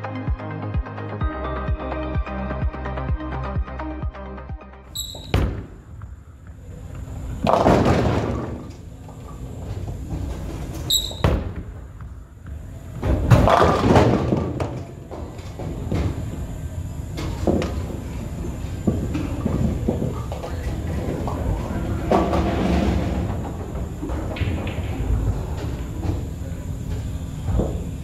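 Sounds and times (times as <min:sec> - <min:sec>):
balls rolling on lanes: 0:06.5 - 0:28.0
bowling ball crashing into pins: 0:07.4 - 0:08.7, 0:13.0 - 0:15.1, 0:20.8 - 0:25.4.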